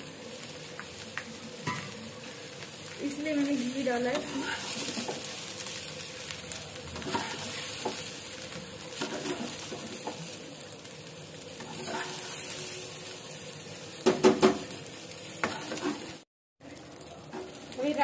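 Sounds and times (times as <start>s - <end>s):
rice sizzling in a pan: 0.0s - 18.0s
spoon stirring and scraping: 4.1s - 5.3s, 7.0s - 8.0s, 9.0s - 10.2s, 11.6s - 12.4s, 15.4s - 16.2s
spoon knocking on pan: 14.0s - 14.7s.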